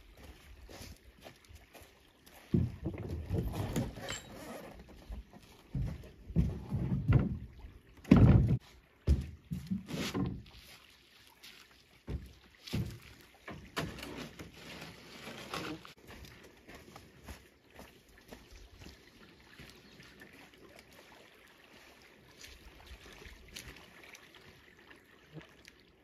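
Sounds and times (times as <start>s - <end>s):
canoe hull thuds and knocks: 2.5s - 4.1s, 4.8s - 10.5s, 12.0s - 14.6s
canoe scraping: 3.0s - 7.4s, 9.8s - 10.7s, 13.6s - 16.0s.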